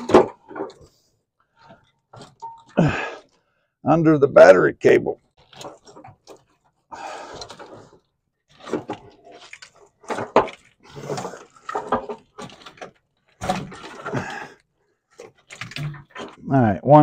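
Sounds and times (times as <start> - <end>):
plastic wiring rustling: 5.2 - 16.5.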